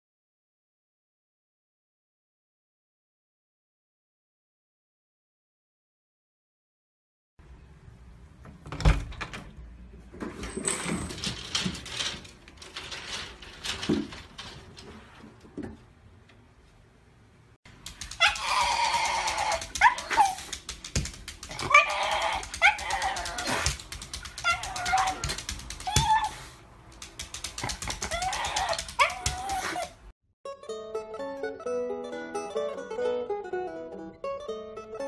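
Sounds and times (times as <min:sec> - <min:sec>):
dog crying high and wavering: 0:18.0 - 0:20.7, 0:21.4 - 0:26.6, 0:27.8 - 0:30.1.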